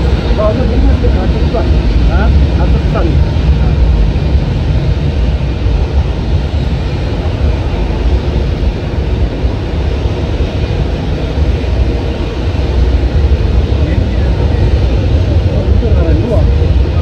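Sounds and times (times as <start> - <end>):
aircraft noise rushing and rumbling: 0.0 - 17.0.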